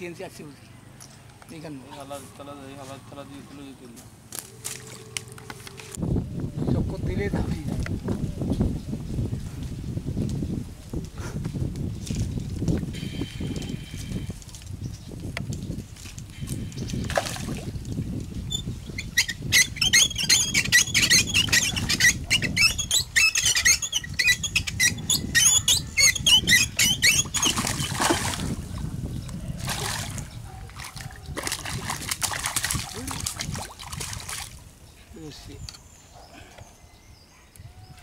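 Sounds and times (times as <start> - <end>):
fish splashing and thrashing: 4.4 - 6.0, 16.8 - 17.8, 26.8 - 28.8, 29.6 - 34.6.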